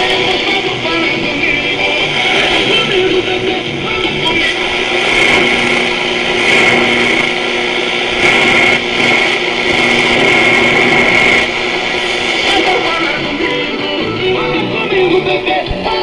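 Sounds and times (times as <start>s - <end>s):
garbled radio broadcast: 0.0s - 16.0s
radio static and whistling tones: 0.0s - 16.0s.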